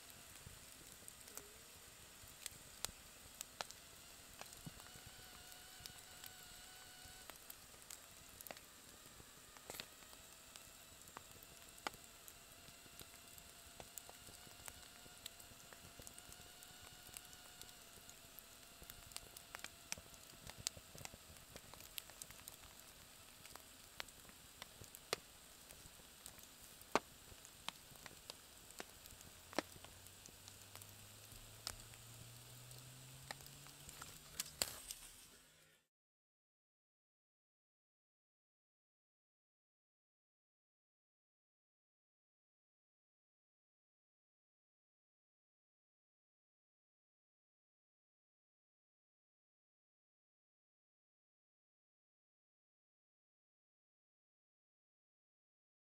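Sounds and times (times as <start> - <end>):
campfire crackling: 0.0 - 35.8
whistling from burning wood: 0.1 - 35.4.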